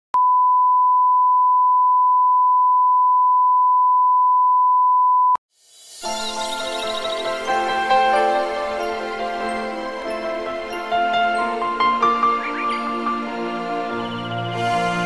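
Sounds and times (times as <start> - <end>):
soft music: 5.6 - 15.0.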